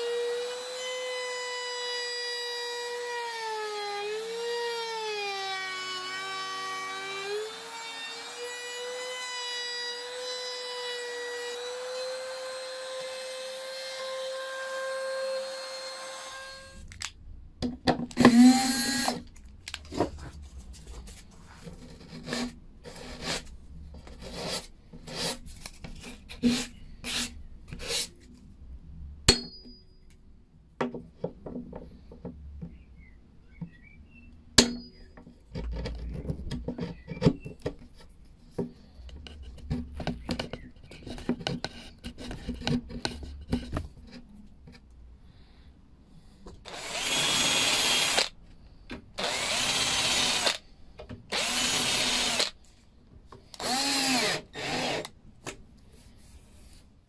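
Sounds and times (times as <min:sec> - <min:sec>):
router motor whine: 0:00.0 - 0:16.8, 0:18.2 - 0:19.2, 0:46.7 - 0:48.3, 0:49.2 - 0:50.6, 0:51.3 - 0:52.6, 0:53.6 - 0:55.1.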